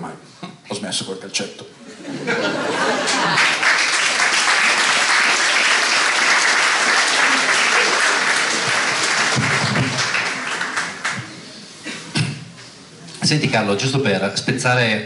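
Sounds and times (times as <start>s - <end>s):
audience applauding: 2.8s - 11.6s.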